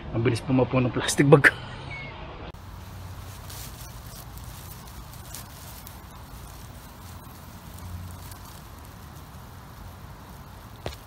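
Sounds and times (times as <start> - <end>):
outdoor hiss and hum: 2.4 - 11.0
hand rustling through plants: 2.6 - 11.0.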